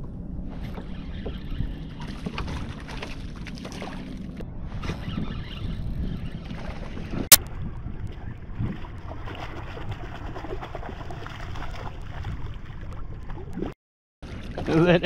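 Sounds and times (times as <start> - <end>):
wind on microphone: 0.0 - 13.7
water lapping at a kayak: 0.1 - 4.4, 6.1 - 15.0
fish splashing: 8.7 - 12.8.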